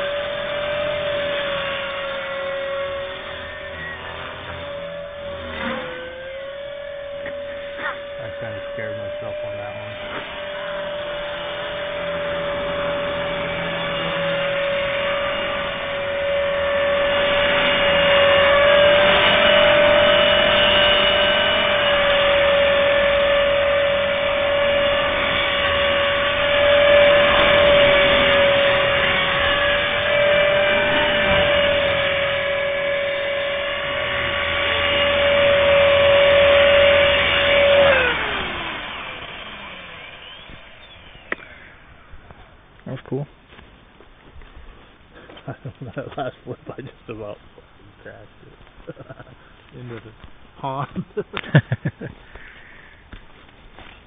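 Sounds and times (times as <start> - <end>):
rc helicopter rotor whine: 0.0 - 43.2, 43.9 - 54.0.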